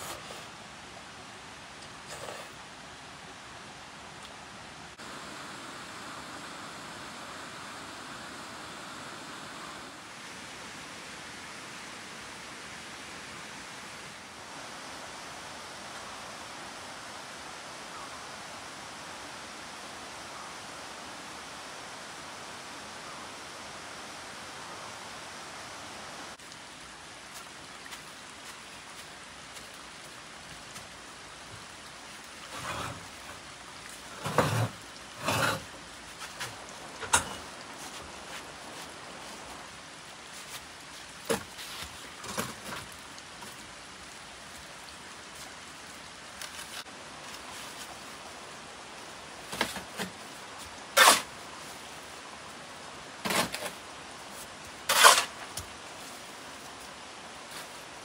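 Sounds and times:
background hiss: 0.0 - 58.0
short knocks and scrapes: 34.2 - 37.4.

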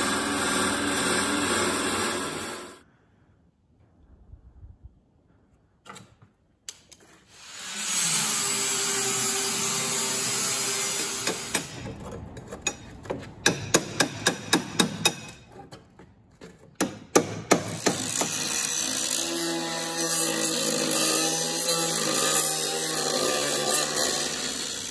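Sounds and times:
angle grinder cutting steel: 0.0 - 2.8, 7.3 - 11.8, 17.7 - 24.9
power tool running: 0.0 - 2.8, 7.3 - 11.8, 17.7 - 24.9
hammer striking metal: 12.6 - 15.4.

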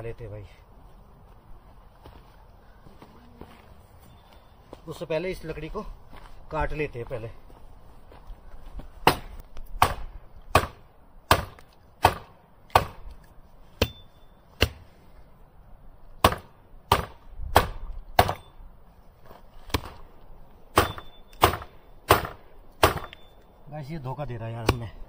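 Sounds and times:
wood chopping strikes: 9.0 - 14.9, 16.2 - 18.5, 19.6 - 20.0, 20.7 - 23.2, 24.6 - 25.0
faint metallic ring: 13.8 - 14.5.

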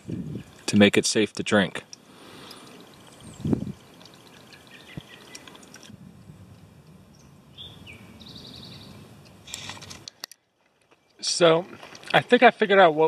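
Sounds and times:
water trickling and dripping: 0.0 - 5.9
small birds calling: 1.8 - 5.9, 7.0 - 9.1.

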